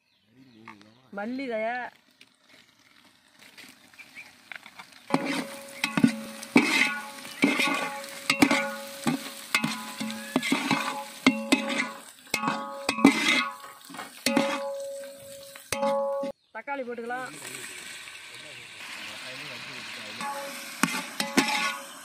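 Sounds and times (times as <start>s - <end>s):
frying sizzle: 3.0s - 16.4s, 17.0s - 22.0s
spatula scraping metal pot: 5.1s - 16.3s, 20.2s - 22.0s.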